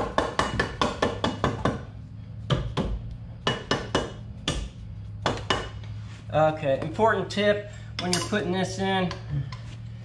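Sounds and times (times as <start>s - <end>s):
hammer tapping metal: 0.0s - 5.9s, 8.0s - 9.3s.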